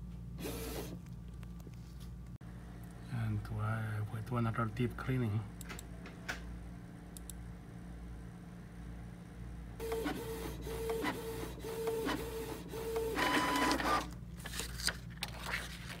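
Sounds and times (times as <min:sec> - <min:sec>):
printer high whirr: 0:09.8 - 0:14.1
printer motor pulses with clicks: 0:09.8 - 0:14.1.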